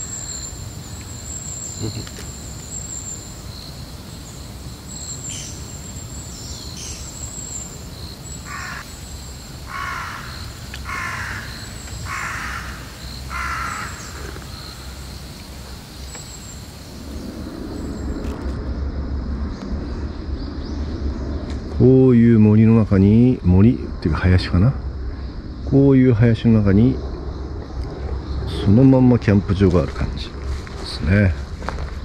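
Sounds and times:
insects chirring: 0.0s - 32.0s
crow cawing: 8.5s - 8.9s, 9.7s - 14.9s.

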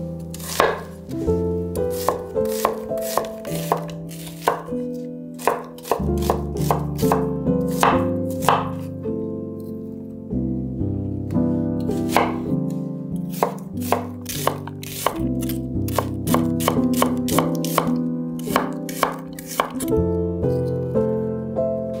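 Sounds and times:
soft background music: 0.0s - 22.0s
knife chopping on cutting board: 0.3s - 1.0s, 1.9s - 8.9s, 12.0s - 12.6s, 13.3s - 19.9s.

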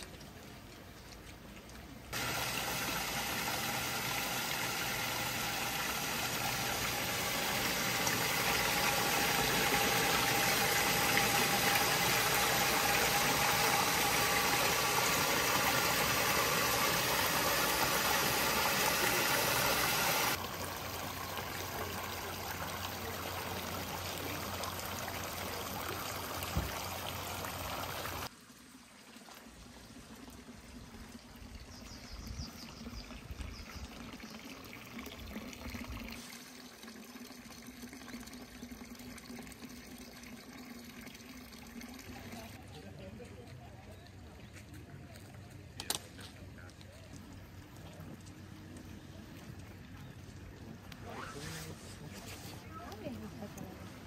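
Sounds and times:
water pouring into trough: 2.2s - 28.3s, 32.9s - 42.6s.

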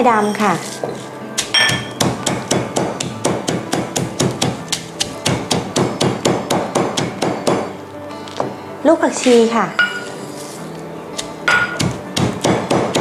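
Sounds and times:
stone pestle pounding in mortar: 1.4s - 7.7s, 11.5s - 13.0s.

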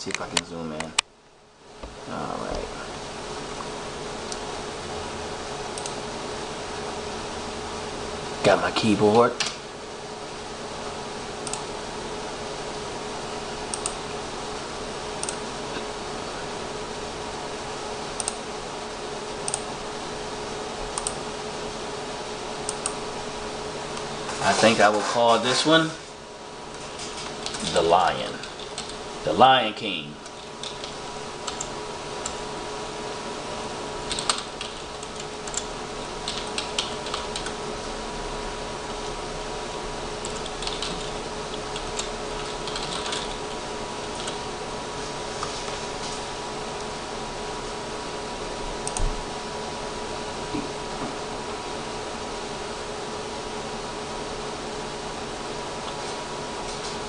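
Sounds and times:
background hiss and hum: 0.0s - 57.0s
computer mouse clicks: 5.8s - 6.0s, 11.4s - 11.7s, 13.7s - 14.0s, 15.2s - 15.4s, 18.2s - 18.4s, 19.5s - 19.7s, 21.0s - 21.2s, 22.7s - 23.0s, 30.2s - 32.4s, 34.1s - 35.7s, 48.8s - 49.1s
keyboard typing: 13.7s - 14.0s, 27.3s - 29.0s, 30.2s - 32.4s, 34.1s - 37.6s, 40.2s - 44.4s.

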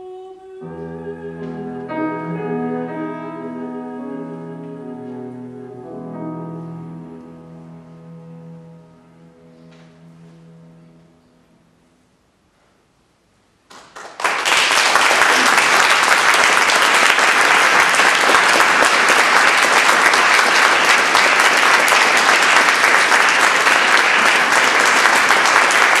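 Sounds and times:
audience applauding: 13.7s - 26.0s.

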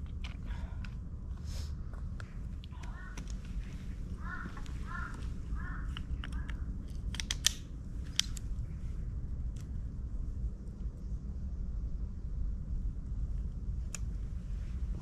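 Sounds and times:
bird calling: 2.8s - 6.7s
trekking pole locks clicking: 5.9s - 8.5s.

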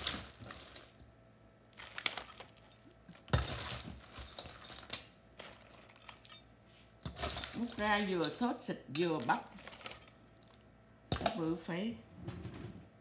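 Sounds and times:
crawfish shells clattering: 1.7s - 6.5s, 9.2s - 10.6s.

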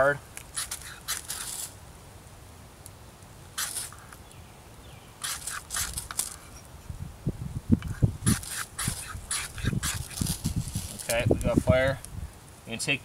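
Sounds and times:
knife scraping firesteel: 0.4s - 1.8s, 3.6s - 4.2s, 5.2s - 6.7s, 7.9s - 11.4s.

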